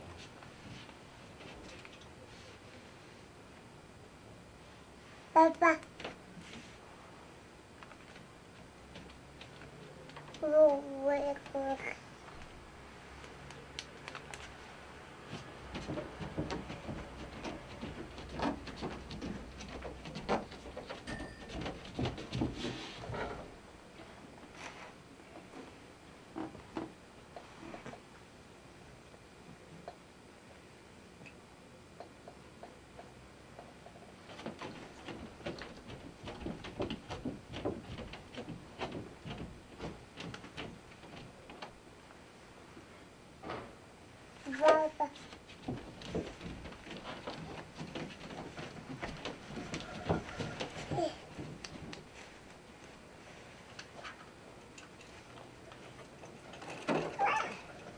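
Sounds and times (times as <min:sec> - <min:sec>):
knocks taps and rustles: 0:07.8 - 0:11.5, 0:15.3 - 0:23.5, 0:32.0 - 0:41.8, 0:44.6 - 0:52.6
clatter of knocks and scrapes: 0:15.3 - 0:23.5, 0:45.2 - 0:52.3, 0:53.9 - 0:57.9.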